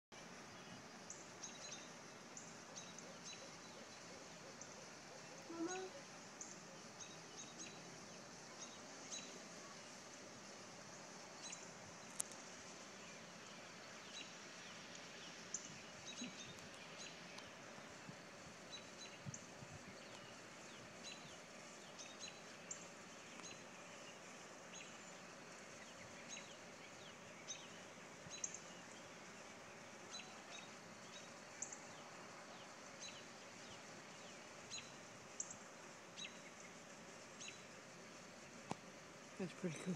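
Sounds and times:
faint outdoor hiss: 0.1s - 39.9s
small birds chirping: 0.3s - 39.9s.

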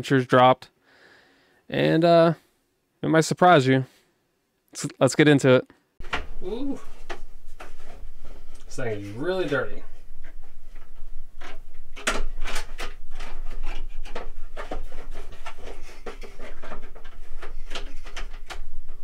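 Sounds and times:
knocks clicks and scrapes of radiator: 9.4s - 19.0s.

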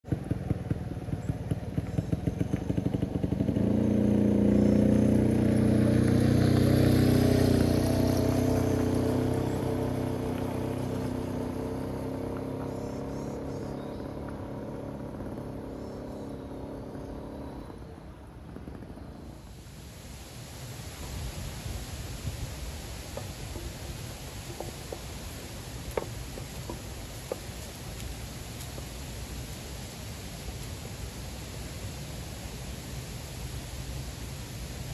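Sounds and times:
motorcycle engine: 0.0s - 19.8s.

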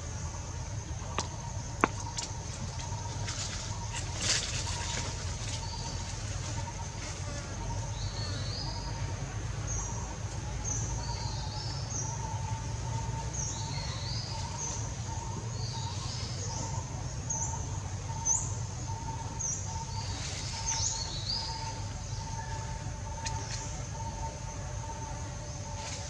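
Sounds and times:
birds chirping: 0.0s - 26.0s
steady low rumble: 0.0s - 26.0s.

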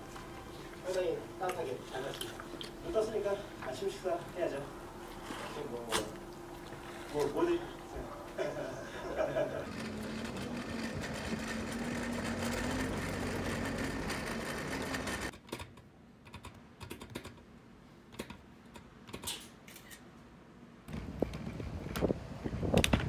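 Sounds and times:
scooter wheels rolling on pavement: 9.6s - 15.3s.

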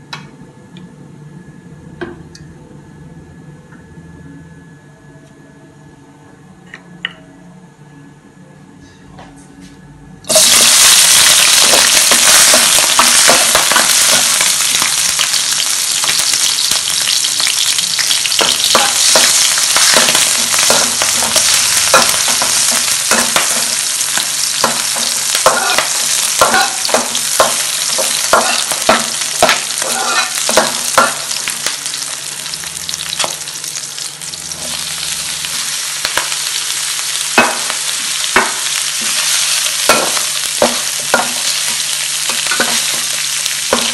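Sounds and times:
food sizzling in hot oil: 10.3s - 43.9s
metal spatula scraping a wok: 24.6s - 31.2s.

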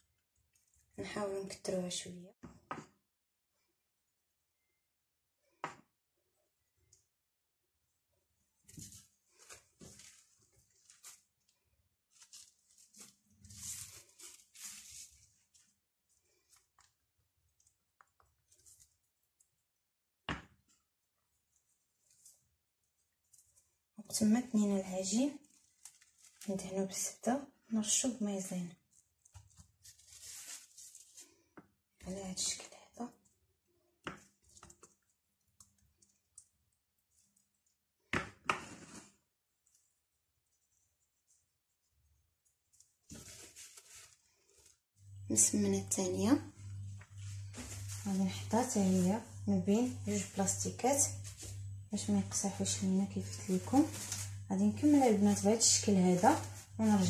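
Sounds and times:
cling film crinkling: 25.4s - 26.5s.

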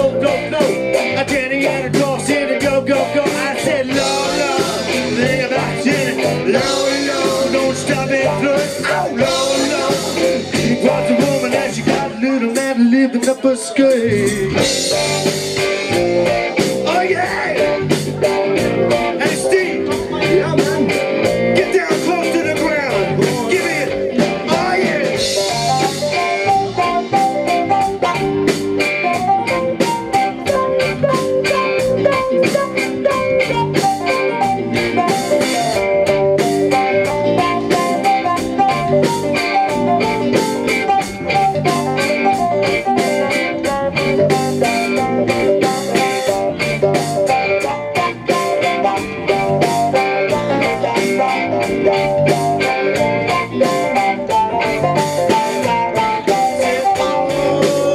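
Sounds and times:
bass guitar: 0.0s - 57.9s
drum kit: 0.0s - 57.9s
electric guitar: 0.0s - 57.9s.

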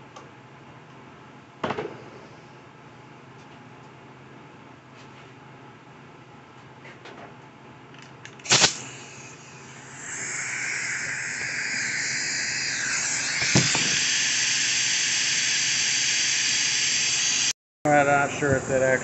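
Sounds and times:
small grinder grinding: 8.5s - 17.5s.

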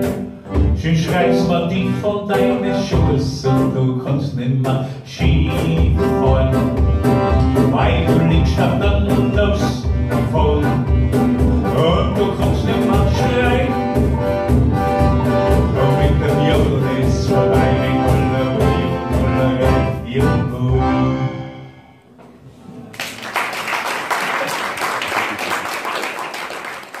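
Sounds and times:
live band playing: 0.0s - 22.1s
man singing: 0.5s - 6.8s, 7.4s - 14.0s, 15.4s - 21.8s
audience applauding: 22.9s - 27.0s.

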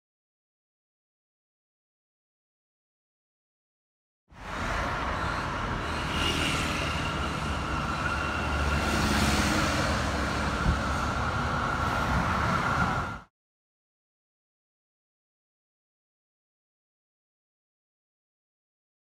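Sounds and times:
street traffic: 4.3s - 13.3s
tram wheels rumbling: 4.4s - 13.2s.

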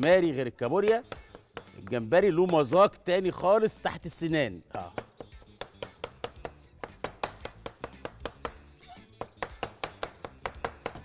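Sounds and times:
cleaver chopping on plastic board: 2.4s - 2.9s, 4.9s - 8.6s, 9.2s - 11.0s.

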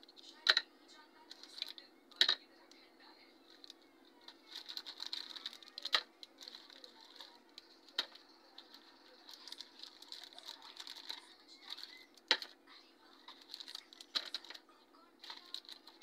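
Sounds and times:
candies tapping plastic tray: 0.1s - 0.7s, 1.3s - 2.5s, 3.5s - 12.6s, 13.2s - 14.6s, 15.2s - 16.0s
wrapper crinkling: 1.3s - 1.8s, 3.5s - 12.5s, 13.2s - 14.6s, 15.2s - 16.0s.

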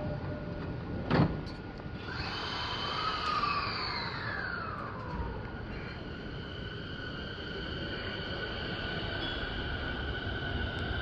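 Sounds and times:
electric train motors whining: 1.8s - 11.0s.

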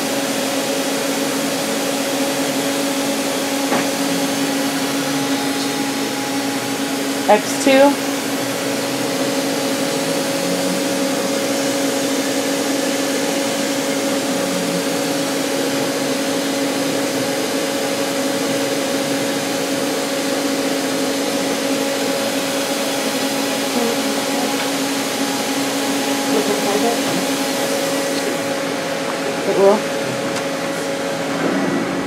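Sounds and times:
lathe motors and fans humming: 0.0s - 32.0s.

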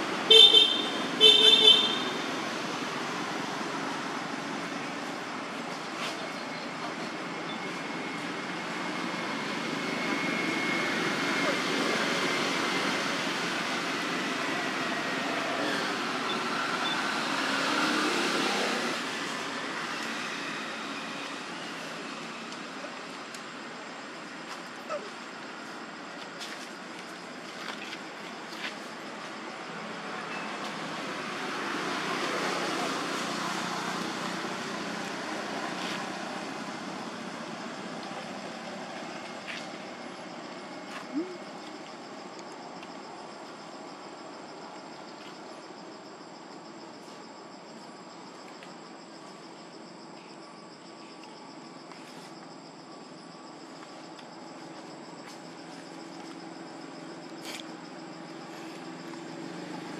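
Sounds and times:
road vehicle passing: 0.0s - 22.9s, 27.4s - 42.0s, 54.5s - 59.9s.

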